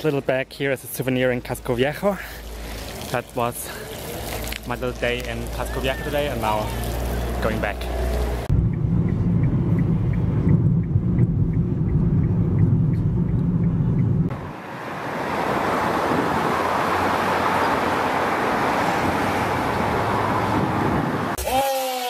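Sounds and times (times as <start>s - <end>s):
road traffic noise: 0.0s - 22.0s
low rumble: 6.9s - 14.3s.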